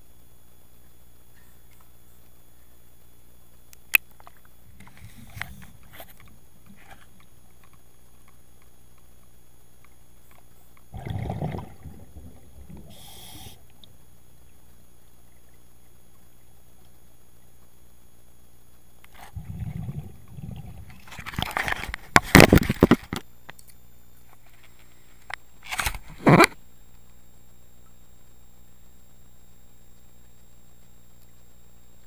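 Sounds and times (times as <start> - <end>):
steady low hum: 0.0 - 32.0
underwater breath bubbling: 10.9 - 13.8, 19.2 - 21.1
high hiss: 12.6 - 13.7.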